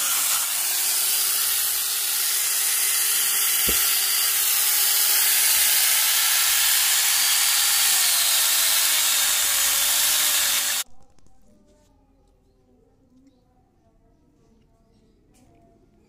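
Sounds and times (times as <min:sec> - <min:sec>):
chainsaw chain cutting through log: 0:00.0 - 0:10.8.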